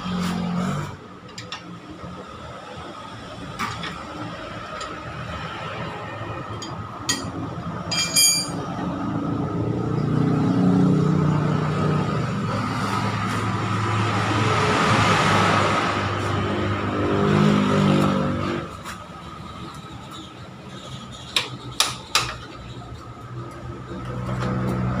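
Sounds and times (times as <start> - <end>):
metal tools clinking: 6.6 - 8.6.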